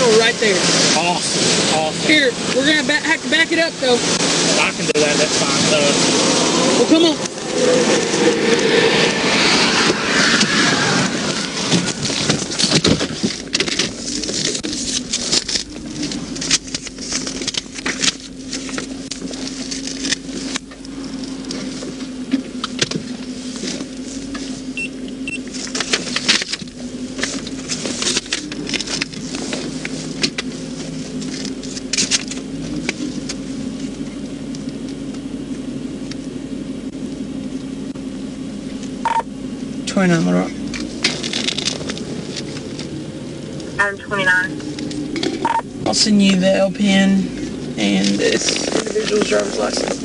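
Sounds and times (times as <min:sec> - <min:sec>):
vehicle low hum: 0:00.0 - 0:50.0
sharp clicks and rustling: 0:11.7 - 0:21.6, 0:40.7 - 0:42.9.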